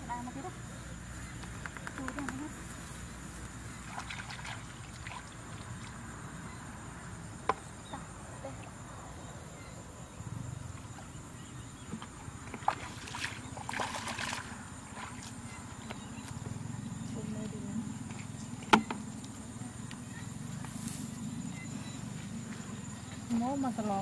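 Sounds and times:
wading through muddy water: 3.5 - 6.4, 11.9 - 16.4.

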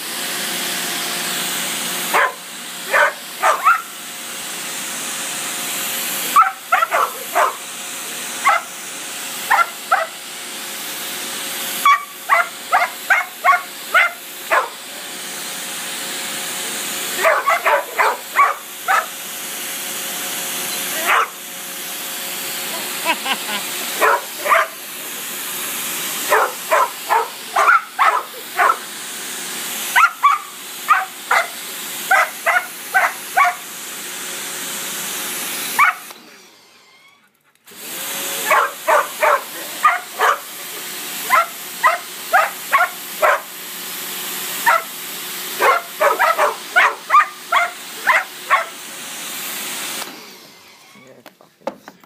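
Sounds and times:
dogs barking: 2.1 - 4.0, 6.3 - 7.6, 8.4 - 8.7, 9.5 - 10.2, 11.8 - 14.8, 17.1 - 19.2, 21.0 - 21.4, 23.9 - 24.9, 26.2 - 28.9, 30.0 - 33.6, 35.8 - 36.1, 38.4 - 40.6, 41.2 - 43.5, 44.6 - 45.0, 45.6 - 48.8
pressure washer water hiss: 6.1 - 10.2, 22.7 - 29.0, 29.8 - 33.7, 38.1 - 43.5, 44.5 - 50.1.

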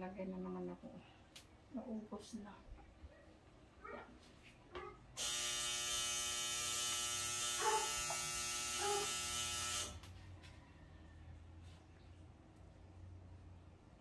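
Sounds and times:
small electric motor hum: 5.2 - 10.2.

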